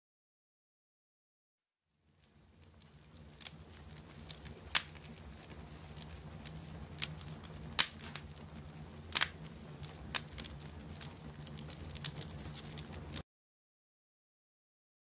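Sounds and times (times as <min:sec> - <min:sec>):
wood fire crackling: 0:01.9 - 0:13.2
steady low hum: 0:02.0 - 0:13.2.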